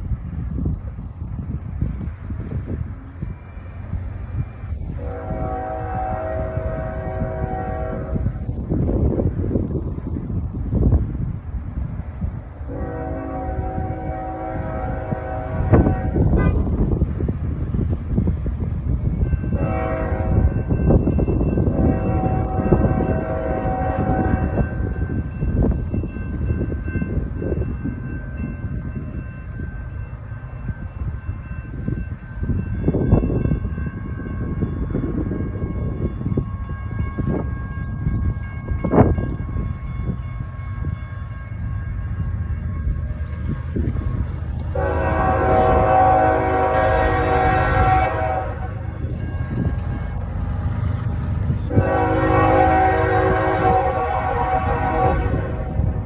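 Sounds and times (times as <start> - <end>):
passing train rumble: 0.0 - 56.0
locomotive horn blasts: 4.8 - 8.6, 12.6 - 17.0, 19.4 - 25.8, 38.8 - 49.9, 51.4 - 56.0.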